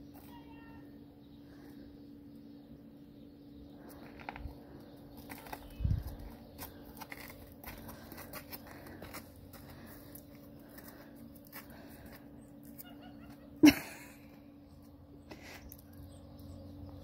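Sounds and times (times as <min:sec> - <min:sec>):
footsteps crunching on snow: 0:05.2 - 0:12.3.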